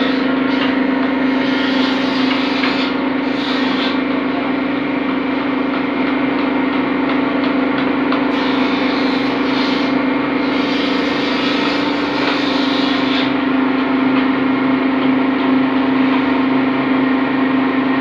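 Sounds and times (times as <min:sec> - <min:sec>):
machine humming: 0:00.0 - 0:18.0.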